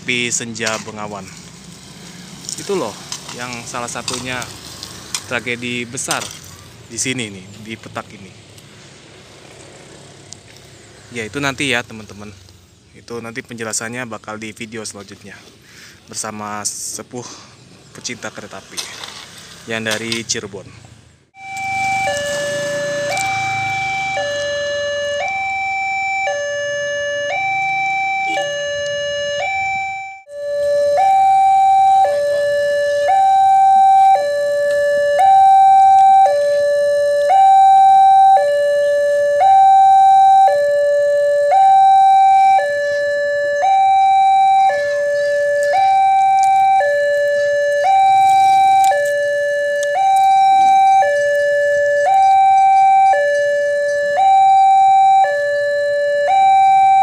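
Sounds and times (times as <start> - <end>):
level crossing two-tone alarm: 21.4 - 57.0.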